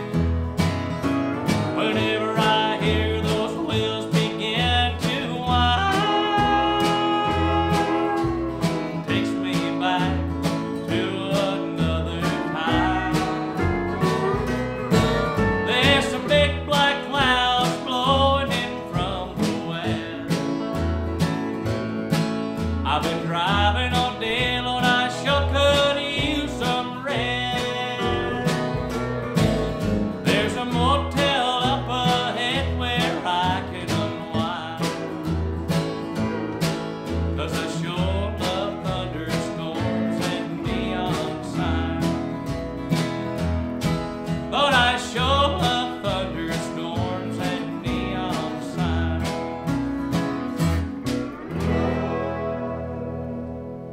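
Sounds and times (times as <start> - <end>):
acoustic guitar strumming: 0.0 - 53.9
bending melody line: 0.0 - 53.9
upright bass notes: 0.0 - 53.9.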